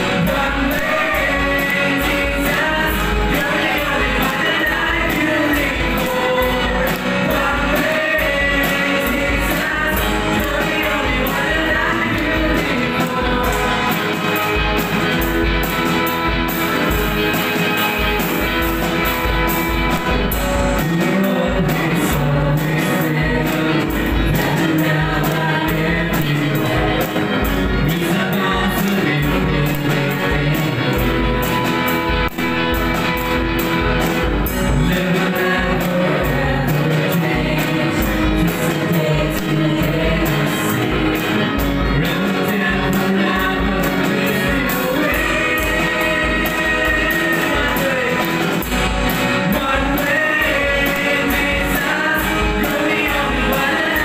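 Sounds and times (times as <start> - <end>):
drum kit steady beat: 0.0 - 54.0
guitar: 0.0 - 54.0
keyboard: 0.0 - 54.0
voices singing through microphones: 0.0 - 54.0.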